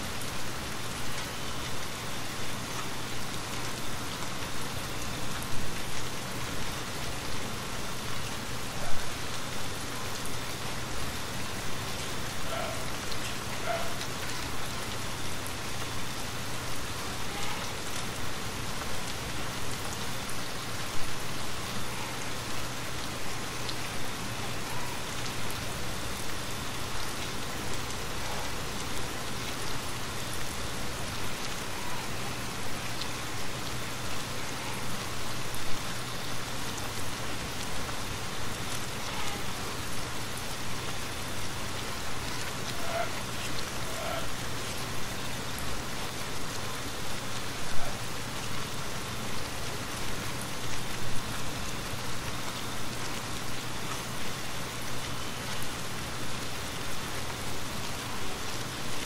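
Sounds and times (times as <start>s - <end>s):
steady rain hiss: 0.0s - 59.0s.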